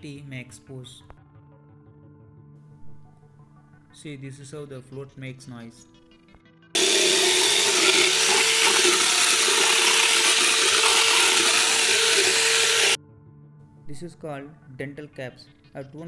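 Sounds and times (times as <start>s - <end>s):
dental float grinding whir: 6.8s - 13.0s.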